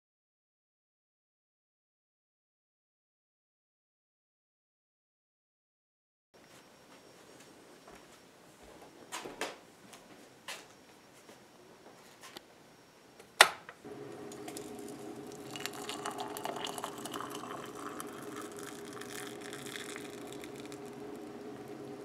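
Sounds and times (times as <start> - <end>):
hot water pouring into a mug: 13.9 - 22.0.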